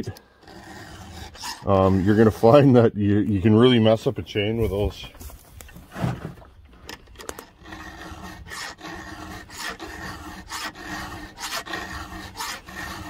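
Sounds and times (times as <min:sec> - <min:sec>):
file rasping on saw chain: 0:00.0 - 0:02.9, 0:07.3 - 0:13.0.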